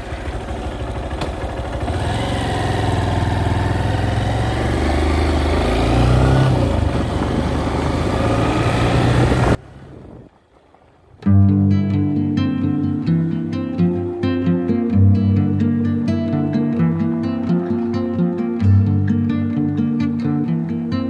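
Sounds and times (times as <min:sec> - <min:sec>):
vehicle engine accelerating: 0:00.0 - 0:11.1.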